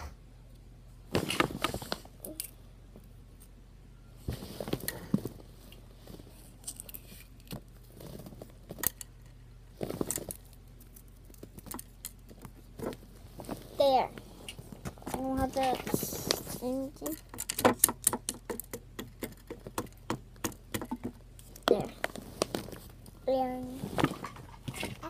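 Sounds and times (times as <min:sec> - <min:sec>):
clothing brushing microphone: 0:14.6 - 0:16.9.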